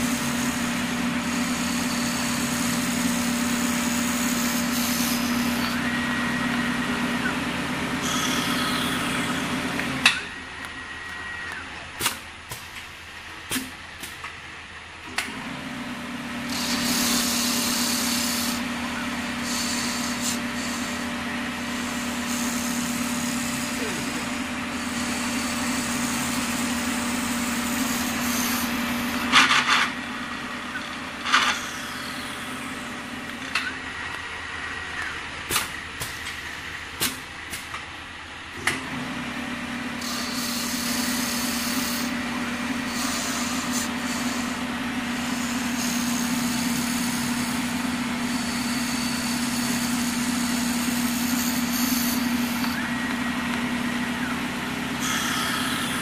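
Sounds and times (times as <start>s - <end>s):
lathe humming: 0.0s - 12.0s, 15.2s - 37.5s, 38.5s - 56.0s
short hissing bursts: 16.5s - 18.6s.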